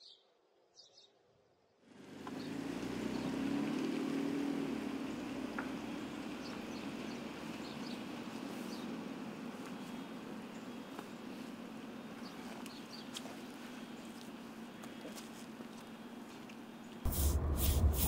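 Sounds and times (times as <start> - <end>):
car driving on wet street: 1.9 - 11.9, 17.1 - 18.0.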